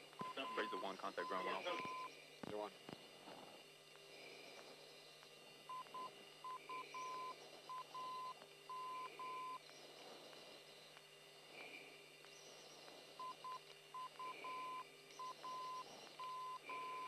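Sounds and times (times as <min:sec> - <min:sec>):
faint radio hiss and hum: 0:00.0 - 0:17.0
morse code beep tone: 0:00.2 - 0:02.1, 0:05.7 - 0:09.6, 0:13.2 - 0:17.0.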